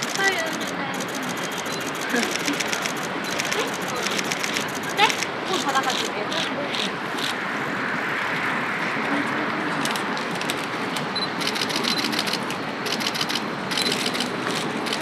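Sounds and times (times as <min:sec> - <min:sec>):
street noise hiss: 0:00.0 - 0:15.0
camera shutter clicks: 0:11.4 - 0:15.0.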